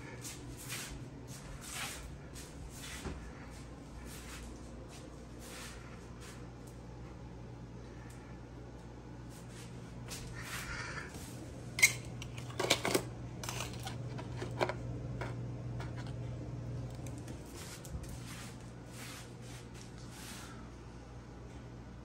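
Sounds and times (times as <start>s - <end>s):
steady low hum: 0.0s - 22.0s
plastic cups clicking and clattering: 11.8s - 16.2s
soft rustling: 17.2s - 20.6s.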